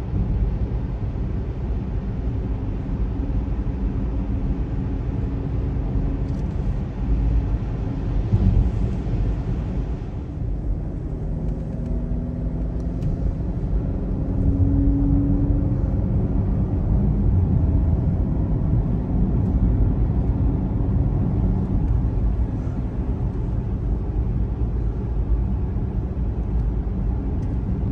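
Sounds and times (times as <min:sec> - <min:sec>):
car cabin road and engine rumble: 0:00.0 - 0:27.9.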